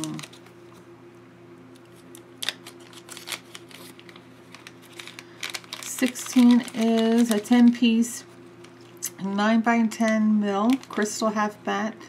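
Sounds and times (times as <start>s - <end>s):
plastic bag crinkling: 0.0s - 0.5s, 1.9s - 9.1s, 9.9s - 11.3s.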